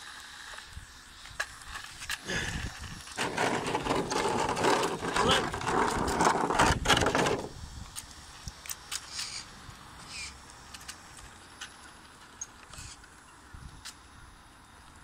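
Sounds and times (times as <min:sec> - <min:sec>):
rc car rattling: 0:00.0 - 0:08.0, 0:08.6 - 0:13.4.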